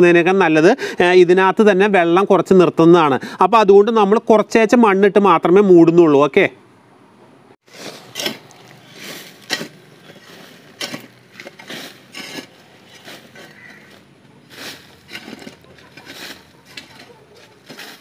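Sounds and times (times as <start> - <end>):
metal hoe scraping dry soil: 7.6 - 18.0.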